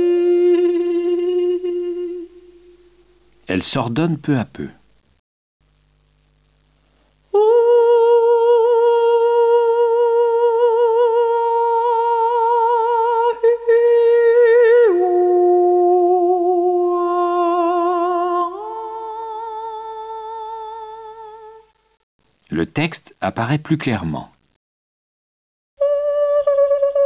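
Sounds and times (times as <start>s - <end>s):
woman singing with vibrato: 0.0s - 3.0s, 7.3s - 21.7s, 25.8s - 27.0s.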